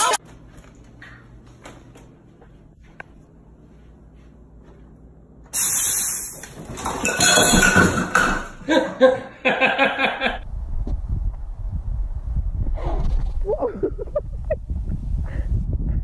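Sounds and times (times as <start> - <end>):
glass clinking: 5.6 - 8.6
things crashing on a counter: 5.6 - 8.6.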